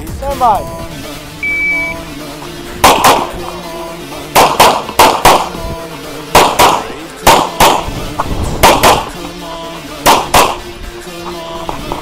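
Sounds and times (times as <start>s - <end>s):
handgun shots: 2.8s - 3.5s, 4.3s - 5.6s, 6.3s - 7.9s, 8.6s - 9.2s, 10.0s - 10.7s.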